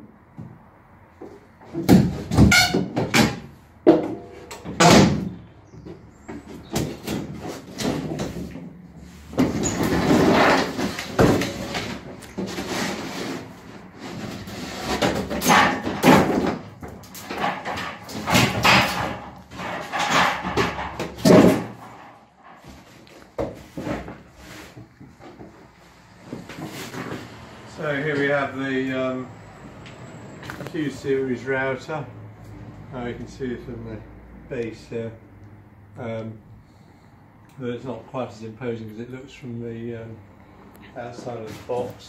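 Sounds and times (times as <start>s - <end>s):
sharp knocks and clatter: 1.2s - 27.2s
wood scraping against wood: 6.3s - 28.4s.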